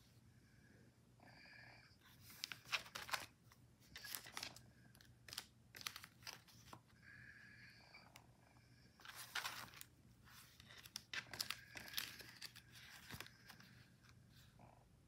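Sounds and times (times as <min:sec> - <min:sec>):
paper pages turning: 0:02.1 - 0:06.8, 0:09.0 - 0:14.5.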